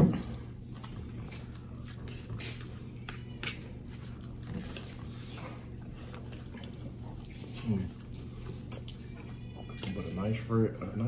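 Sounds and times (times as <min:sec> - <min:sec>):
chewing: 0:00.0 - 0:10.2.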